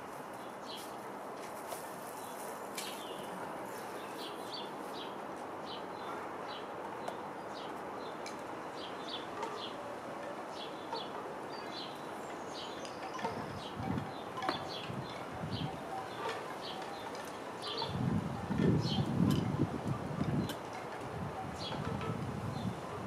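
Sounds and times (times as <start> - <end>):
steady background noise: 0.0 - 23.0
small birds chirping: 1.6 - 9.8, 10.5 - 19.2.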